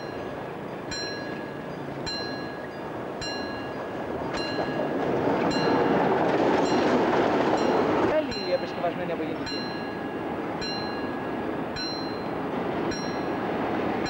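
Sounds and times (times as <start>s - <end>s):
diesel locomotive approaching: 0.0s - 14.0s
level crossing warning bell: 0.0s - 14.0s.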